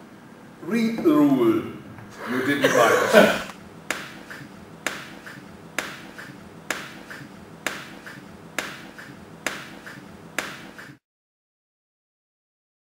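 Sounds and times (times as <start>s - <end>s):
sharp rhythmic clicks: 3.9s - 11.0s.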